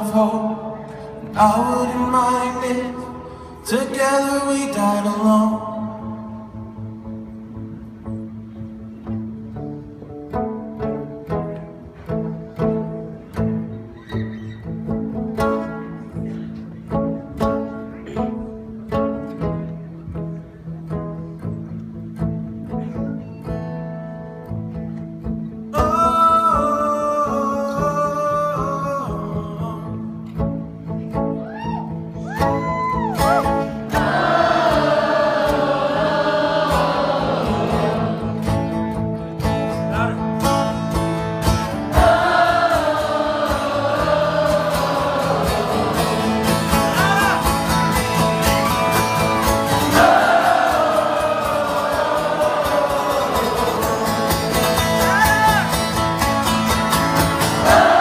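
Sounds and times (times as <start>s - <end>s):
acoustic guitar strumming: 0.0s - 58.0s
group wordless singing: 33.9s - 38.8s, 41.7s - 47.5s, 49.6s - 55.3s, 57.2s - 58.0s.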